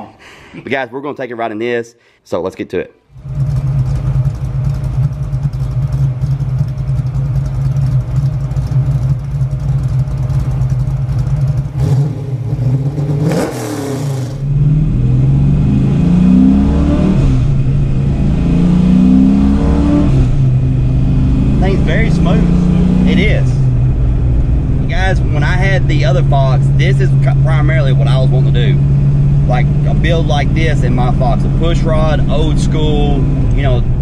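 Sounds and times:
car engine idling: 3.1s - 13.4s, 14.0s - 34.0s
car accelerating through gears: 11.7s - 23.8s, 24.8s - 34.0s.

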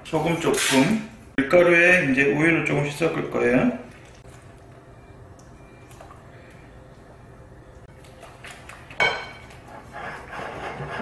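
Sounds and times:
whisk scraping and clinking bowl: 9.0s - 11.0s.

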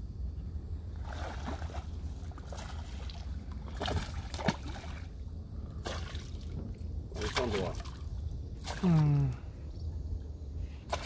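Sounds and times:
steady low rumble: 0.0s - 11.0s
fish splashing in water: 1.0s - 6.6s, 7.2s - 9.0s.

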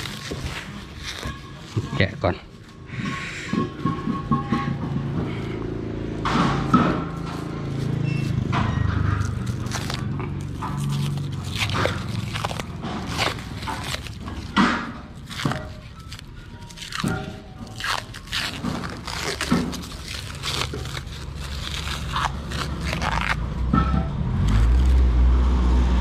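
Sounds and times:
plastic wrap crinkling: 0.0s - 2.7s, 9.2s - 23.4s.

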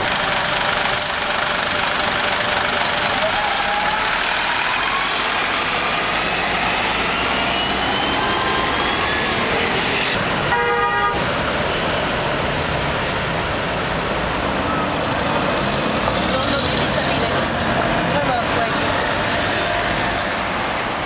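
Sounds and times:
street traffic: 0.0s - 21.0s
vehicle horn toot: 10.5s - 11.2s.

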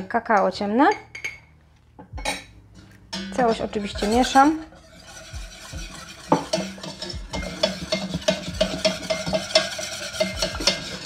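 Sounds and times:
whisk scraping metal saucepan: 2.8s - 11.0s.

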